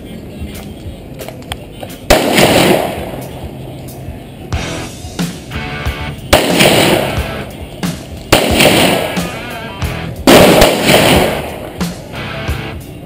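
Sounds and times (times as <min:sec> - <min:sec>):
background music: 0:00.0 - 0:13.0
pistol shots: 0:02.1 - 0:03.3, 0:06.2 - 0:09.5, 0:10.2 - 0:12.0.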